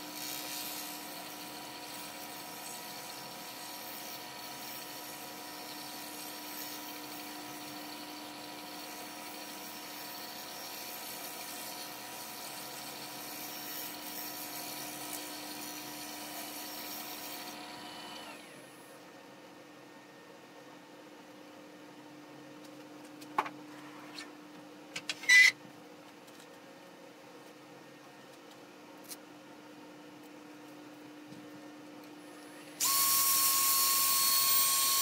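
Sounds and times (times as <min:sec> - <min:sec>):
tool cutting wood hiss: 0:00.0 - 0:18.6, 0:32.8 - 0:35.0
lathe motor whine: 0:14.7 - 0:18.8, 0:32.6 - 0:35.0.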